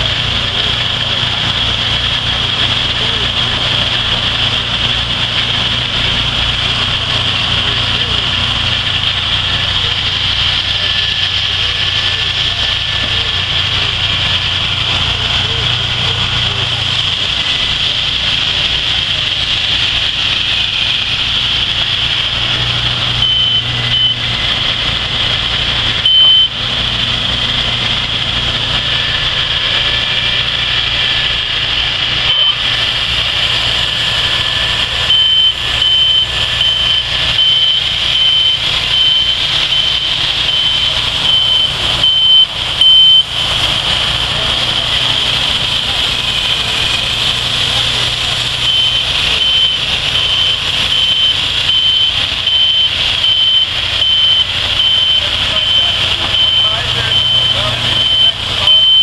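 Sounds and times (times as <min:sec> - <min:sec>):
band sawmill engine running: 0:00.0 - 0:59.0
short high beeps: 0:23.2 - 0:24.2, 0:26.0 - 0:26.6, 0:32.3 - 0:32.6, 0:35.0 - 0:43.3, 0:48.6 - 0:59.0.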